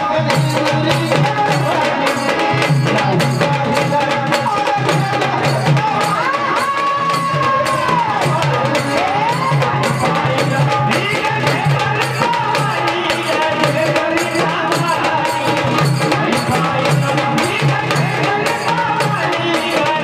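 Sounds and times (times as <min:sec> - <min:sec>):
fast folk drumming: 0:00.0 - 0:20.0.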